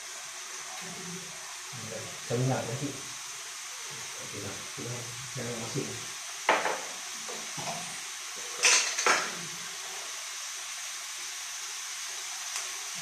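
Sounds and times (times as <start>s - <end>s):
steady hiss: 0.0s - 13.0s
kitchenware clattering: 6.5s - 6.9s, 7.6s - 9.4s.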